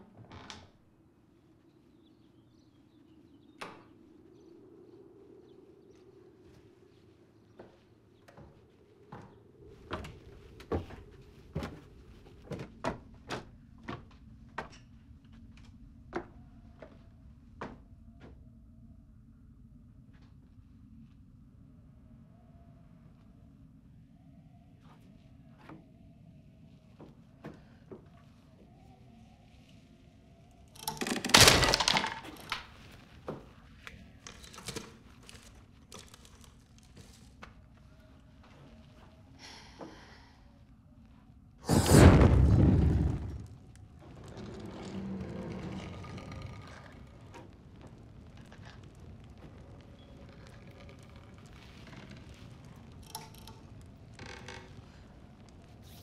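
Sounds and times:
loud crash and thud: 41.7s - 43.6s
footsteps on creaky wooden stairs: 41.7s - 55.6s.

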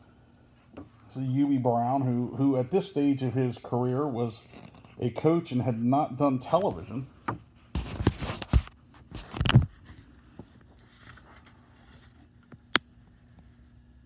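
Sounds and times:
paper booklet rustling: 7.6s - 12.3s.

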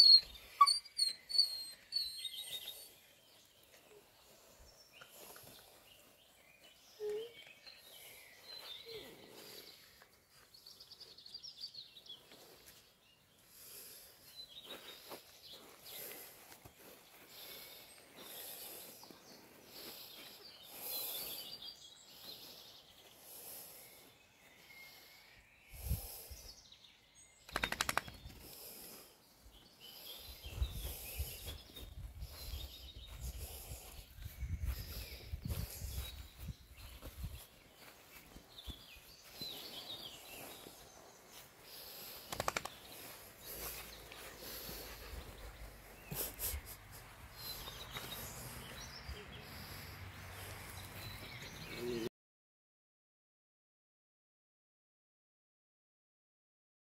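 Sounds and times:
bird trill: 0.0s - 3.0s
birds chirping: 0.0s - 52.1s.

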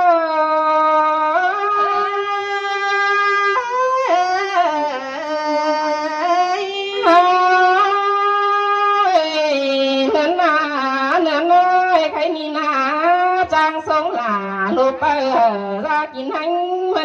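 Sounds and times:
reedy wind instrument melody: 0.0s - 11.8s.

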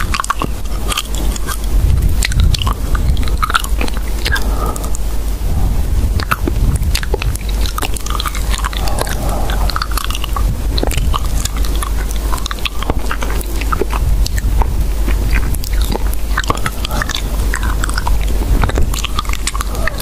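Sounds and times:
crunching and clicking: 0.0s - 5.1s, 6.1s - 20.0s
steady low hum: 0.0s - 20.0s.

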